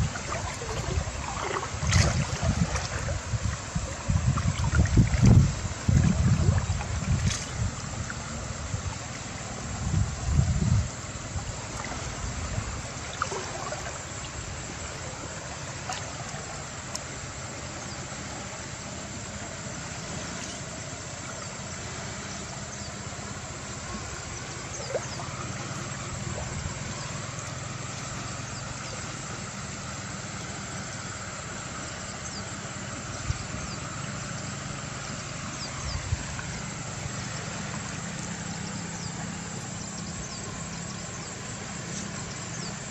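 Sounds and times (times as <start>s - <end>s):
wind buffeting microphone: 0.0s - 14.9s, 35.3s - 40.6s
low motor hum: 0.0s - 42.9s
river water hiss: 0.0s - 42.9s.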